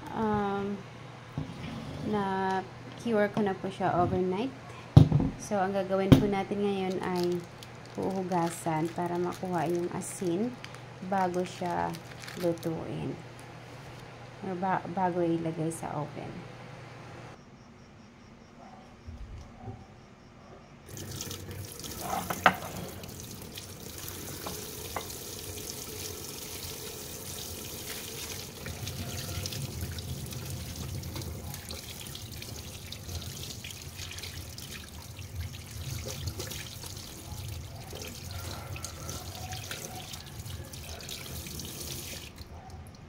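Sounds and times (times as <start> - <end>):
faucet running into a steel sink: 20.9 - 42.4
water splashing off meat and hands: 27.5 - 42.5.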